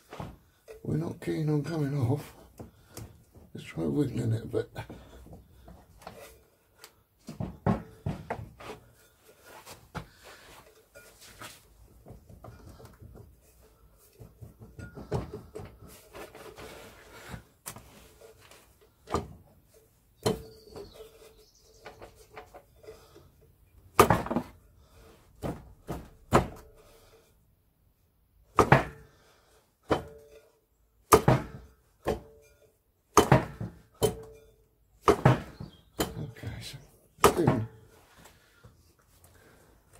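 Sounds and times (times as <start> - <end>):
sharp metal clunks: 20.2 - 21.0, 28.5 - 29.1, 31.1 - 36.4.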